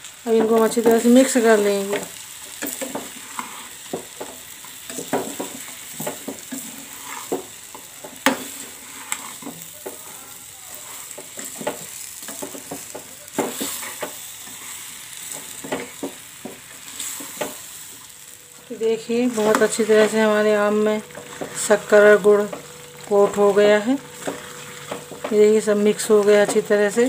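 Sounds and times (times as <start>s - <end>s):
steady sizzle: 0.0s - 27.0s
spoon stirring and scraping pan: 0.3s - 27.0s
spoon knocking against pan: 3.9s - 6.5s, 15.3s - 16.6s, 24.2s - 25.4s.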